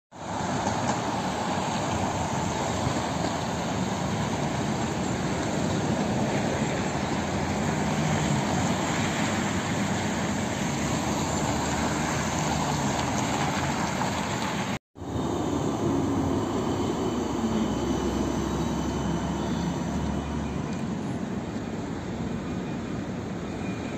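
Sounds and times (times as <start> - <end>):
city road traffic: 0.1 - 23.9.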